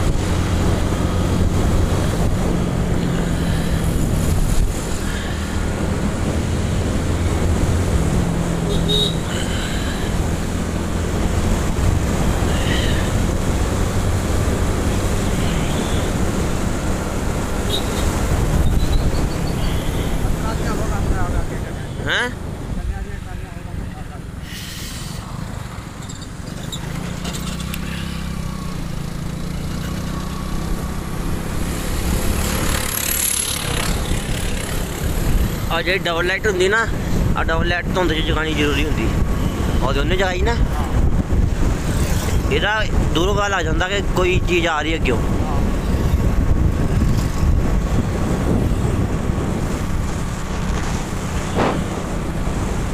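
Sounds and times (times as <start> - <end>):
wind rushing over microphone: 0.0 - 26.5, 30.2 - 52.9
motorcycle rumble: 0.0 - 52.9
wind buffeting microphone: 33.6 - 52.9.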